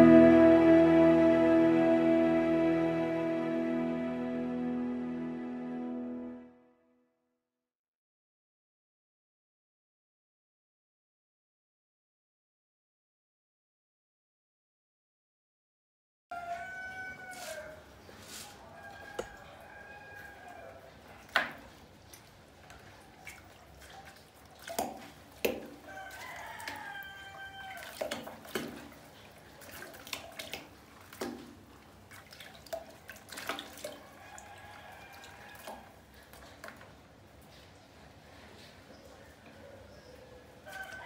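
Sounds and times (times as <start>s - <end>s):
rooster crowing: 16.3s - 17.9s, 18.6s - 20.9s, 25.8s - 28.0s, 34.0s - 35.9s, 40.6s - 41.0s
water splashes and drips: 17.2s - 38.8s, 40.6s - 41.0s.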